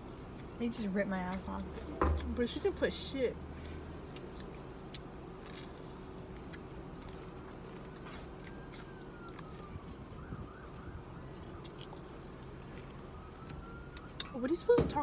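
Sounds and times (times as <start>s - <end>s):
chewing: 1.3s - 2.4s, 3.6s - 14.4s
ice cream cones crunching: 3.6s - 14.7s.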